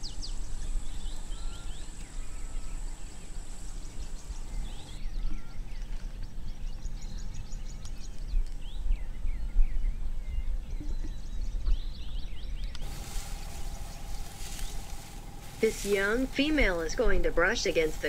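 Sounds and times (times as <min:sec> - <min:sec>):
birds chirping: 0:00.0 - 0:18.0
steady low rumble: 0:06.4 - 0:18.0
thin high whine: 0:12.8 - 0:18.0.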